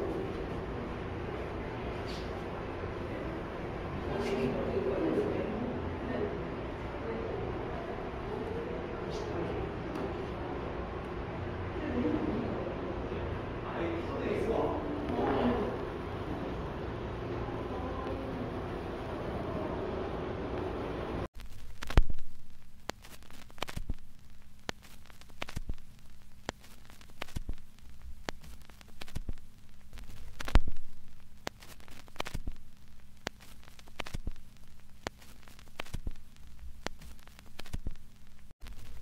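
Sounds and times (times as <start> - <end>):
static crackle clicks: 20.5 - 39.0.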